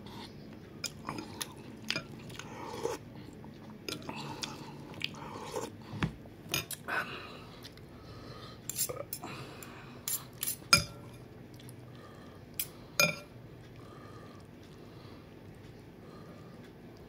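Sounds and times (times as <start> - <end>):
cutlery clinking against glass bowl: 10.1 - 11.2, 12.6 - 13.3.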